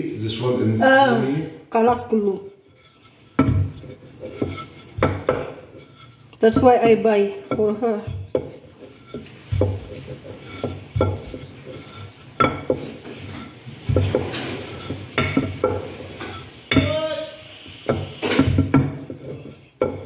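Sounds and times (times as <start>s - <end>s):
rolling pin knocking on stone countertop: 3.3s - 17.0s, 17.8s - 20.0s.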